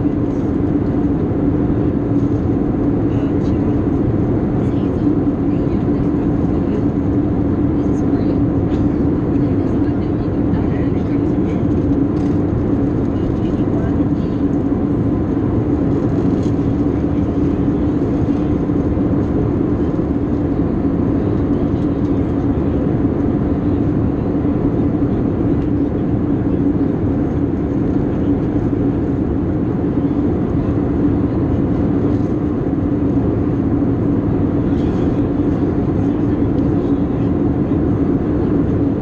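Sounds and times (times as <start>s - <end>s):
jet engines droning: 0.0s - 39.0s.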